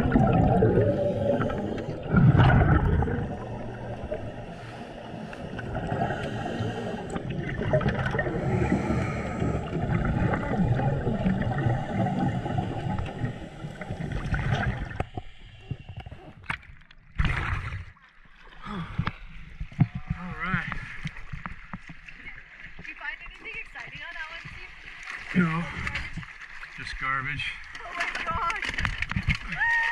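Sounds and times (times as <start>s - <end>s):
underwater bubbles gurgling: 0.0s - 22.9s.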